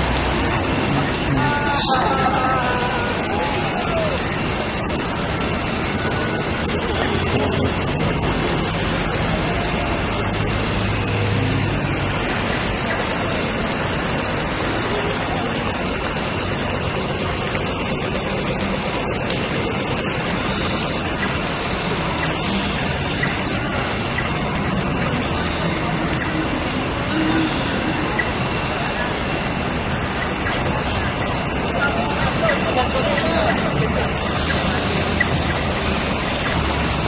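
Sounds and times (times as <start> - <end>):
car engines: 0.0 - 37.0.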